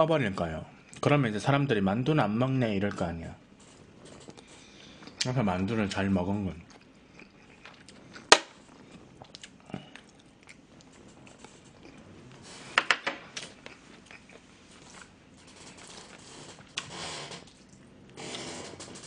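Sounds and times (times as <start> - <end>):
chewing food: 2.9 - 5.3, 6.4 - 12.4, 13.3 - 16.8.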